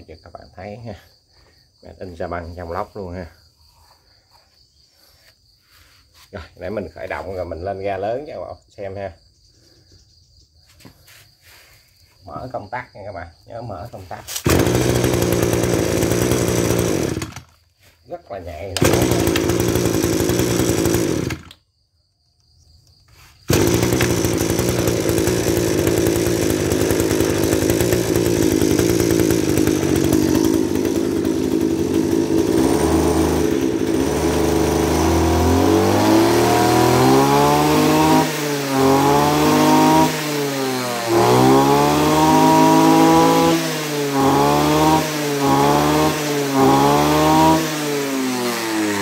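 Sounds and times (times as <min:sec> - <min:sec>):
brush cutter engine idling: 0:04.3 - 0:08.2, 0:13.6 - 0:21.6, 0:23.1 - 0:49.0
brush cutter engine revving: 0:13.8 - 0:21.6, 0:23.1 - 0:49.0.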